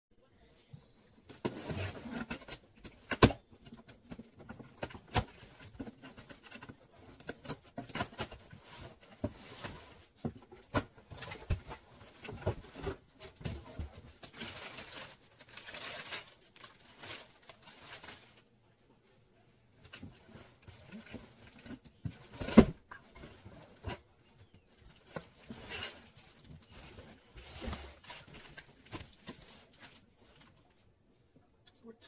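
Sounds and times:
packing paper rustling: 0:10.6 - 0:18.5, 0:24.6 - 0:30.8.

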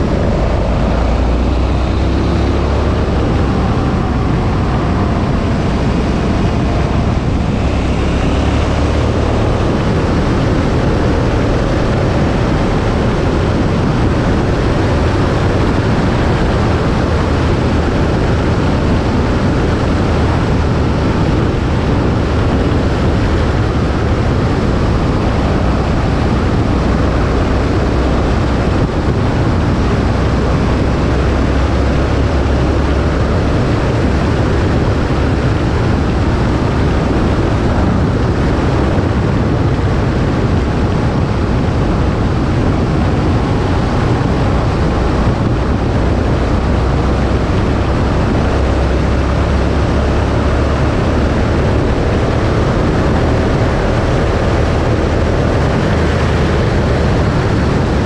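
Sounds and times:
motorcycle engine running: 0:00.0 - 0:58.0
wind rush on microphone: 0:00.0 - 0:58.0.

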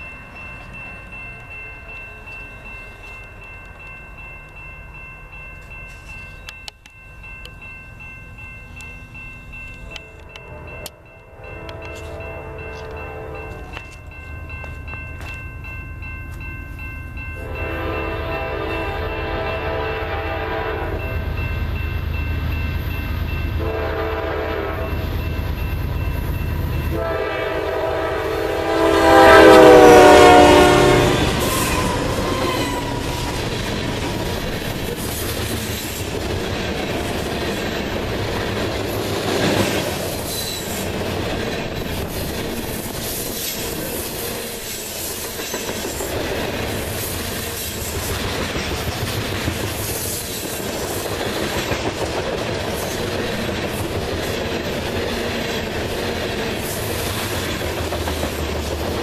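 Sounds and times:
locomotive horn blasts: 0:10.2 - 0:13.8, 0:17.4 - 0:21.2, 0:23.6 - 0:25.0, 0:26.9 - 0:33.0
train cars clacking over rail joints: 0:31.2 - 0:59.0.

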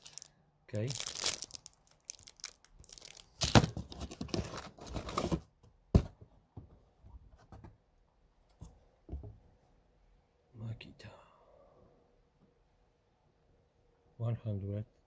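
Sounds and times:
plastic bag crinkling: 0:00.0 - 0:04.2
cardboard packaging handling: 0:01.0 - 0:05.5.

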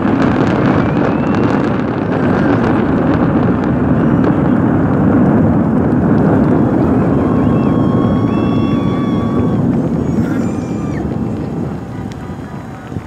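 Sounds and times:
distant fireworks rumble: 0:00.0 - 0:13.0
faint whistle-like tones: 0:00.6 - 0:01.7, 0:06.9 - 0:13.0.

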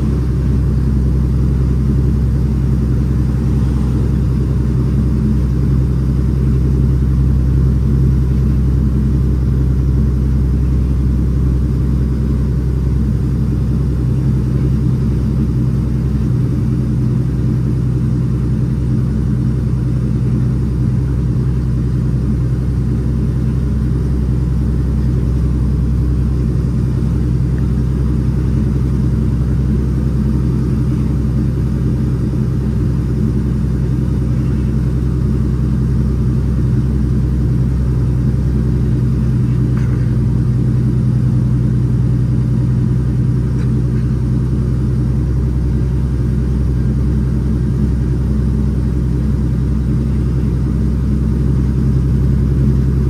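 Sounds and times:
road noise: 0:00.0 - 0:12.8
truck diesel engine drone: 0:00.0 - 0:53.0.

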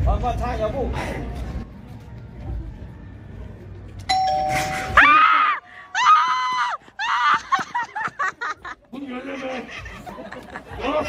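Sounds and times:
bell tone: 0:04.1 - 0:05.1
woman screaming: 0:04.9 - 0:07.6.

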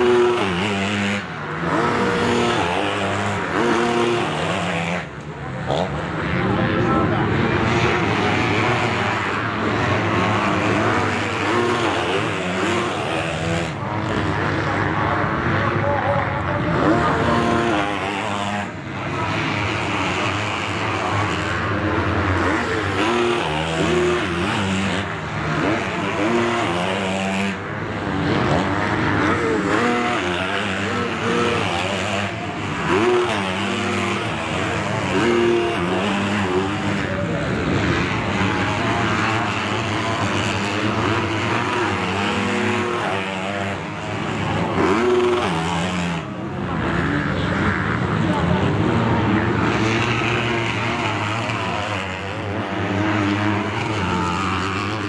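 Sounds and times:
motocross bike engines revving: 0:00.0 - 0:55.0.

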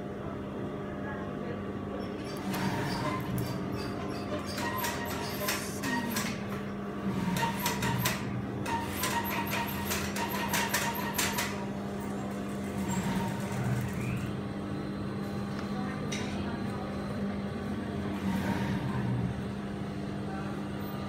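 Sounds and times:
sewing machine motor hum: 0:02.2 - 0:14.6.

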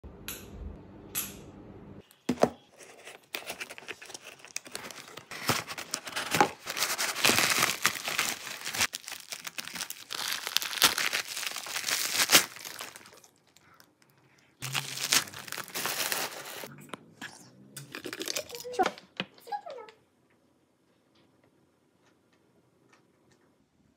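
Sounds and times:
plastic wrapping crinkling: 0:02.3 - 0:16.7
packing tape tearing: 0:02.8 - 0:13.4, 0:14.6 - 0:16.7.

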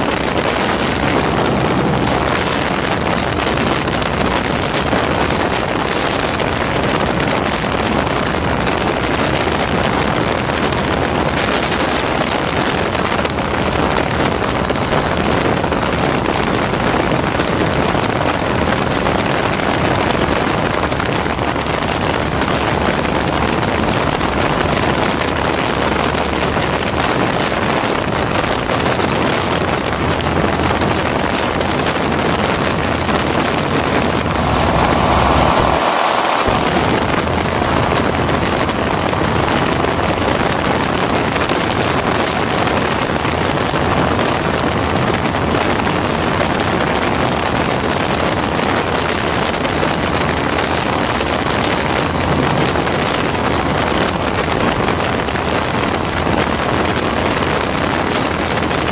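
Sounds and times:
aircraft engine running: 0:00.0 - 0:10.6, 0:29.4 - 0:42.0
wind noise on microphone: 0:00.0 - 0:58.9.

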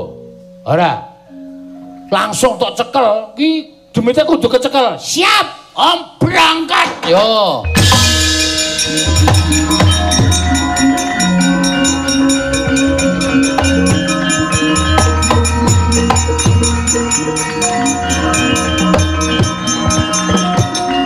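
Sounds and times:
gamelan playing: 0:00.0 - 0:03.9, 0:07.3 - 0:21.0
drum and gong strokes: 0:07.7 - 0:21.0.

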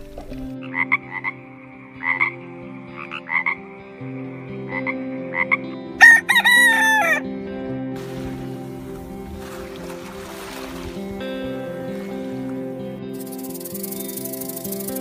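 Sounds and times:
frog croaking: 0:00.5 - 0:07.2
rooster crowing: 0:06.0 - 0:07.2.

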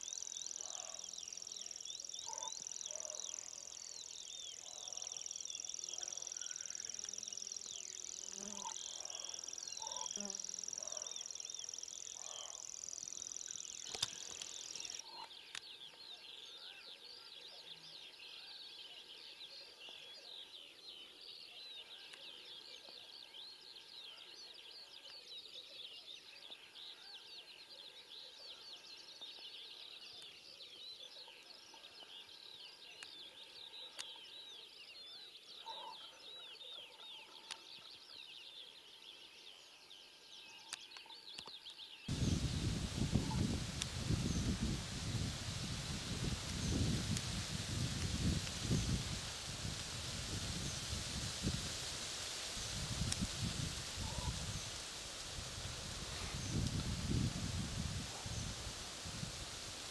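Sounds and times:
chorus of birds chirping: 0:00.0 - 0:59.9
high insect trill: 0:42.1 - 0:59.9.

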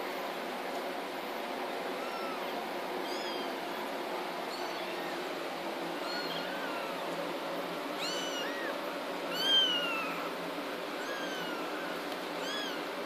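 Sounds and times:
steady background hiss: 0:00.0 - 0:13.0
kittens mewing: 0:01.9 - 0:07.1, 0:07.8 - 0:13.0.

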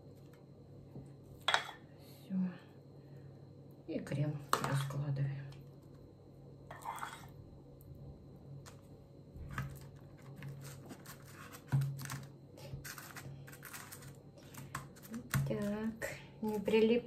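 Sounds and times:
low steady hum: 0:00.0 - 0:17.0
spoon scraping glass dish: 0:06.7 - 0:07.3.

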